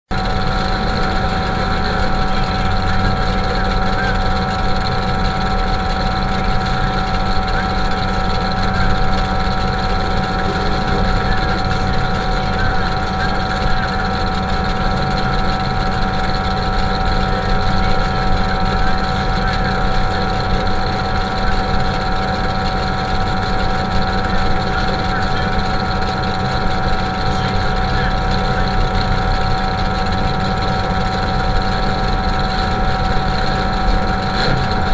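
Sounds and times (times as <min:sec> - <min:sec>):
truck engine idling: 0:00.1 - 0:34.9.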